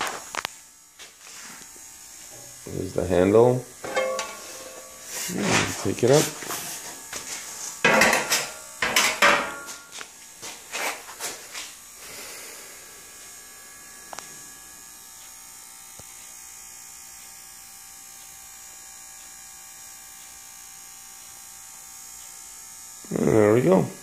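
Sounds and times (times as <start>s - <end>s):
steady electrical hum: 0.0s - 24.0s
rake clattering against metal: 3.8s - 5.8s.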